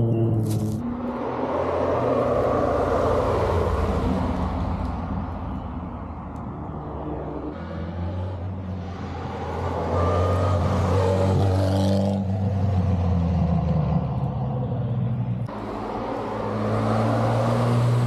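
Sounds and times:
rally car passing at speed: 0:15.6 - 0:18.0.

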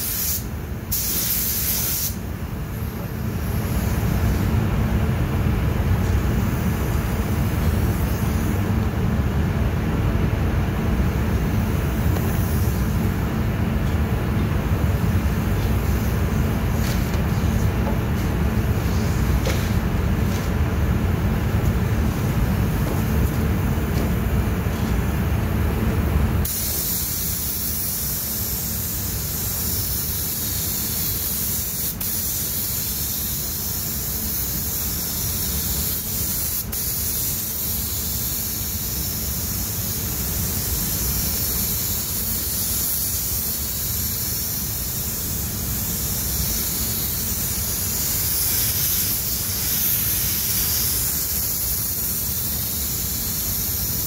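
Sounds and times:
spray gun hissing: 0:00.0 - 0:04.4, 0:06.0 - 0:08.6, 0:11.3 - 0:13.2, 0:15.0 - 0:20.5, 0:26.4 - 0:54.0.

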